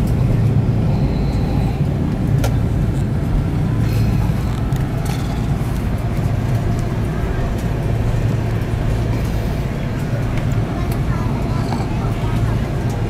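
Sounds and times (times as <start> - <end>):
airliner cabin rumble while taxiing: 0.0 - 13.0.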